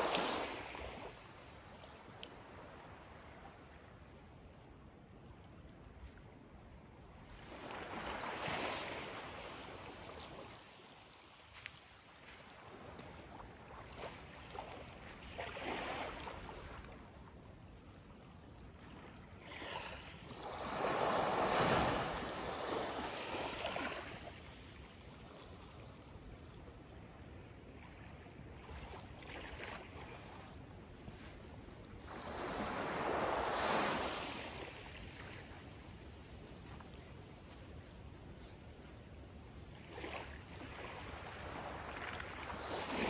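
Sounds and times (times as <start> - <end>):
small waves washing on sand: 0.0 - 4.0, 7.2 - 17.6, 18.8 - 43.0.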